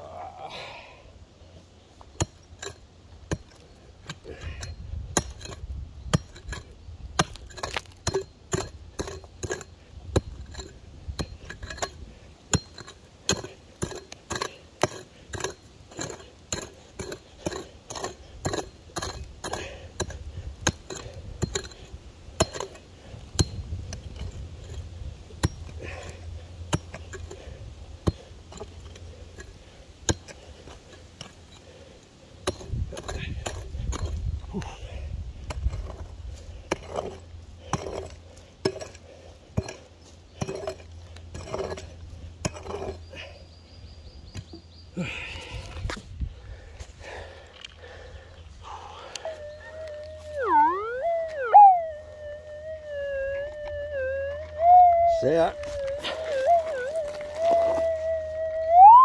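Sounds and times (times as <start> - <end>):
pick chopping stony ground: 2.0 - 43.4, 54.4 - 59.0.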